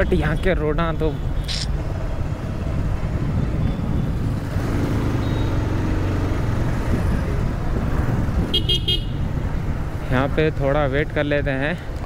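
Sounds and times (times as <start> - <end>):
town traffic: 0.0 - 12.0
wind on microphone: 2.5 - 4.6, 6.8 - 9.8.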